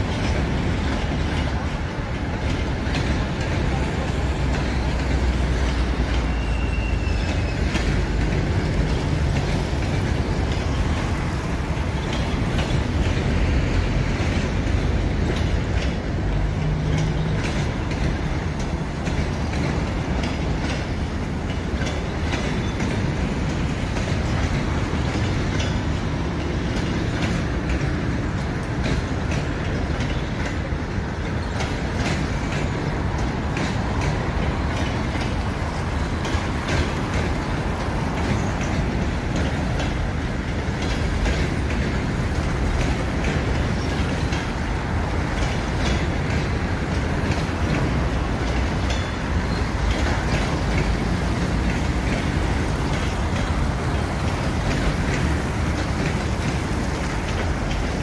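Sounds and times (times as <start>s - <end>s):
train coaches rumbling: 0.0s - 58.0s
wheels clicking over rail joints: 0.0s - 58.0s
faint high squeal: 6.2s - 7.7s.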